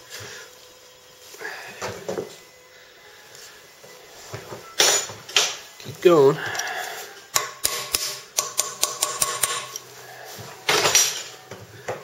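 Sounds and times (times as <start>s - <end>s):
hammer striking metal punch: 7.3s - 9.8s.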